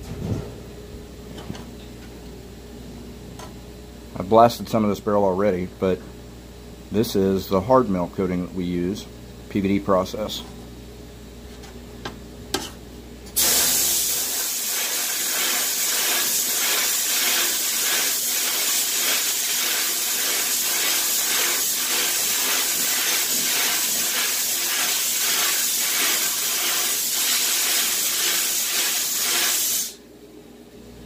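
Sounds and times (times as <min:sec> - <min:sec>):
sandblast gun hissing: 0:13.4 - 0:30.0.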